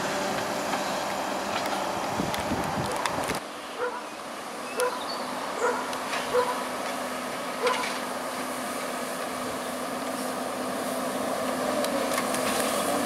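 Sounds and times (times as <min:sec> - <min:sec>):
wheel loaders humming: 0:00.0 - 0:13.0
dog barking: 0:03.8 - 0:04.1, 0:04.8 - 0:05.0, 0:05.6 - 0:06.6, 0:07.6 - 0:07.9.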